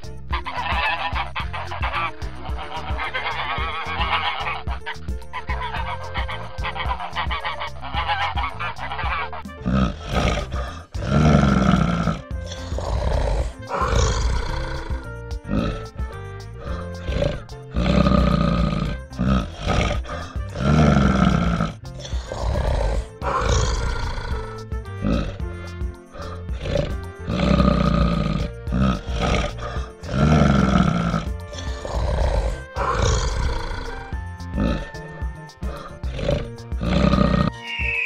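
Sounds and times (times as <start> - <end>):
deep growl: 0.0 - 37.6
background music: 0.0 - 38.0
geese honking: 0.4 - 9.5.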